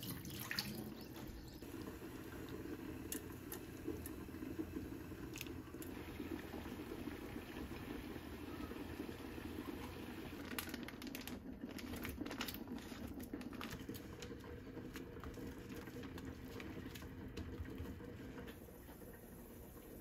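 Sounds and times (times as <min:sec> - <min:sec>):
water boiling in a frying pan: 0:00.0 - 0:20.0.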